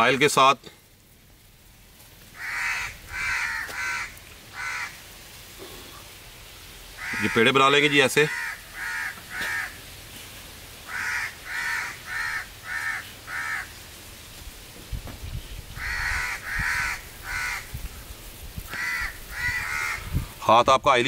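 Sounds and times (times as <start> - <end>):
crow cawing: 2.4 - 5.0, 7.0 - 9.8, 10.8 - 13.8, 15.8 - 17.8, 18.7 - 20.2.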